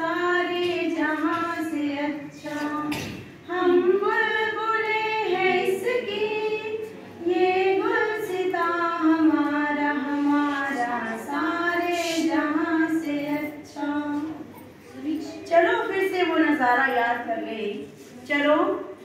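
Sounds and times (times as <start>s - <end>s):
woman singing unaccompanied: 0.0s - 14.5s.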